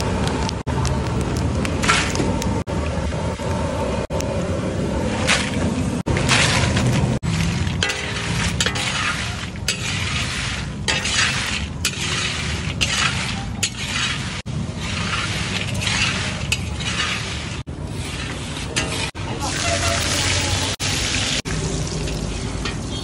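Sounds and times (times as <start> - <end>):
metal spatula scraping iron pan: 5.1 - 21.1, 22.1 - 23.0.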